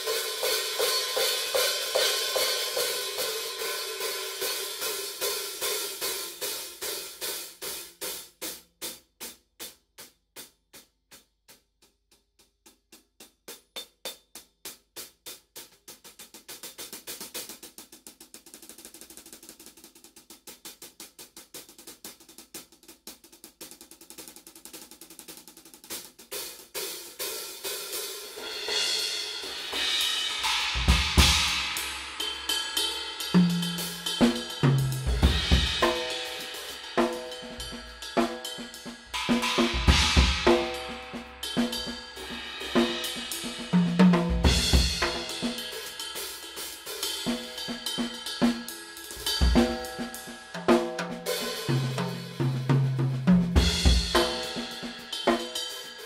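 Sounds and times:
drum kit groove: 0.0 - 56.0
cymbal crashes: 28.4 - 43.8.

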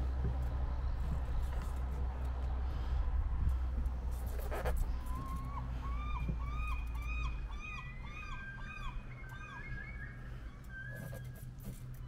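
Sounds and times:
steady low rumble: 0.0 - 10.9
bird call notes: 5.4 - 11.5.

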